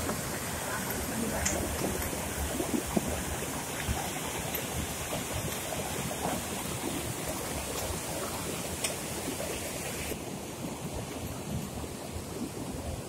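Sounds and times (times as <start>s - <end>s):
stream rushing over rocks: 0.0s - 13.0s.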